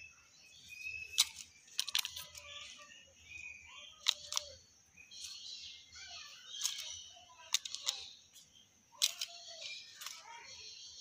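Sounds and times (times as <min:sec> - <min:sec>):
high bird chatter: 0:00.0 - 0:11.0
myna calling with sharp clicks: 0:00.8 - 0:08.2.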